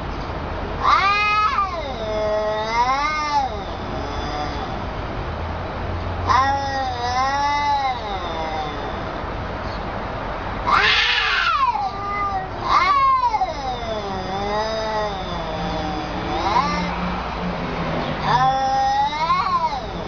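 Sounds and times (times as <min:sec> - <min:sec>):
cats yowling: 0:00.8 - 0:05.0, 0:06.2 - 0:09.3, 0:10.6 - 0:17.4, 0:18.1 - 0:20.0.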